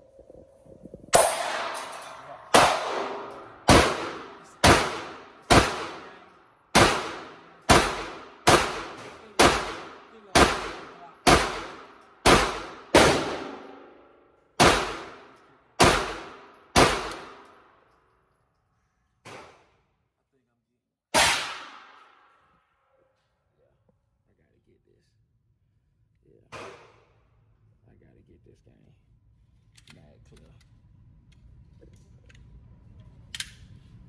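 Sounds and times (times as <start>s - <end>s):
pistol shots echoing indoors: 1.2s - 18.1s, 21.1s - 23.2s.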